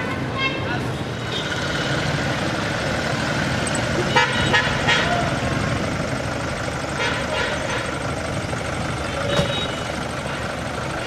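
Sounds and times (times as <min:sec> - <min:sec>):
car engine rumble: 0:00.0 - 0:11.0
car horn toots: 0:04.1 - 0:05.2, 0:07.0 - 0:07.9, 0:09.2 - 0:10.0.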